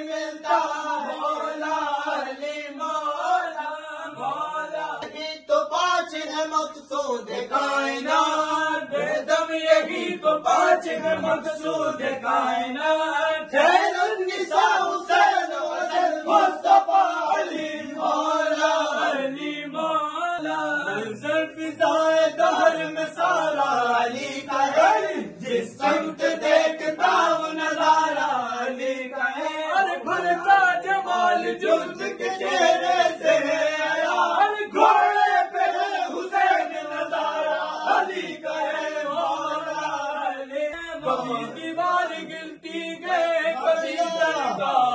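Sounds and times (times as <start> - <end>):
men chanting devotional verses: 0.0 - 44.9.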